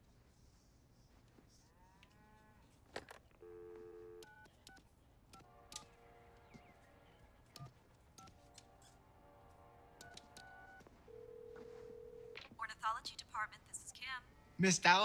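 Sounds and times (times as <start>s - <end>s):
dial tone: 3.4s - 4.4s, 10.4s - 12.4s.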